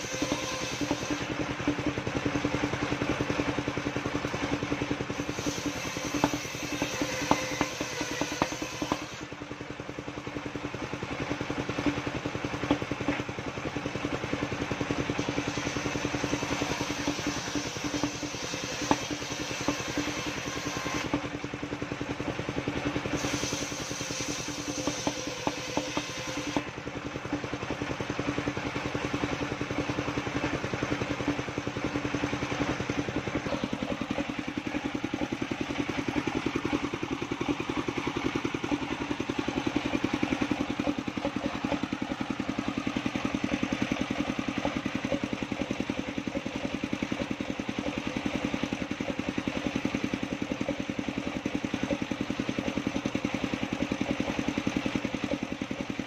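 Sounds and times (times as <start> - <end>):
circular saw ripping planks: 0.0 - 1.6, 5.1 - 9.4, 15.1 - 21.4, 23.1 - 26.7
sawmill engine running: 0.0 - 56.0.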